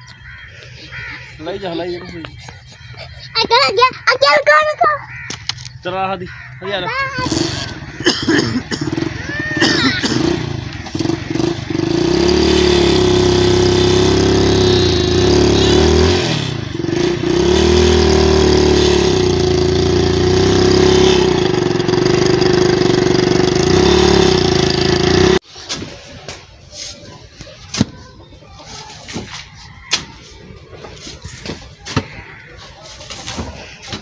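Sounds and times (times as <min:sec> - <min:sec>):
motorcycle engine running: 0:05.1 - 0:25.4.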